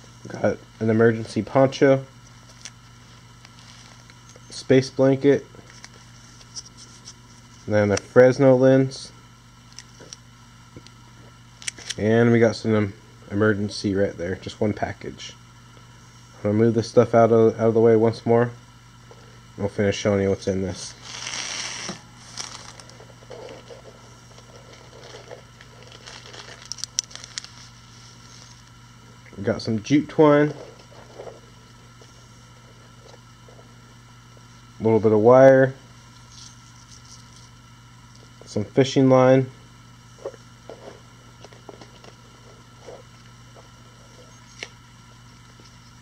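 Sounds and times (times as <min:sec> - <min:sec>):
steady low hum: 0:00.0 - 0:46.0
plastic packet crinkling: 0:21.0 - 0:23.0, 0:24.7 - 0:28.6.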